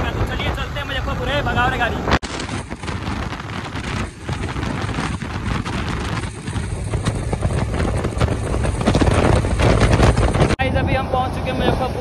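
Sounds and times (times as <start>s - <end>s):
road noise: 0.0s - 12.0s
wind buffeting microphone: 0.0s - 12.0s
motorcycle engine running: 2.3s - 12.0s.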